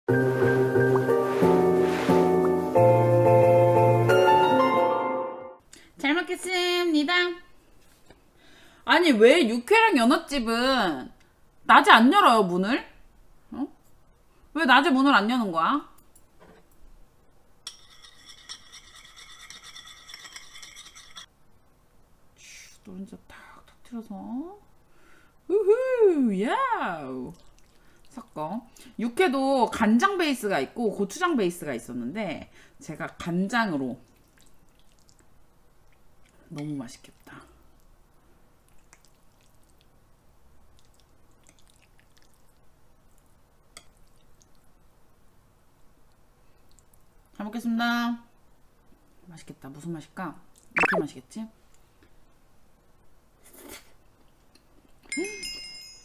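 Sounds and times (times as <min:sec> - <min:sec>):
chopsticks scraping in bowl: 0:17.7 - 0:21.3
wet squishing: 0:27.3 - 0:28.4, 0:34.0 - 0:36.5, 0:38.6 - 0:39.9, 0:40.6 - 0:42.6.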